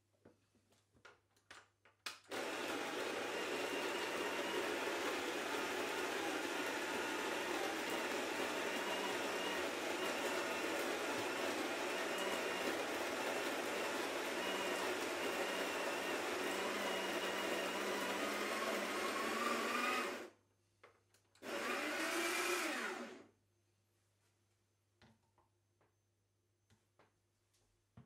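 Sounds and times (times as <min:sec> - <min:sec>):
coffee grinder grinding beans: 0:02.3 - 0:20.3, 0:21.4 - 0:23.2.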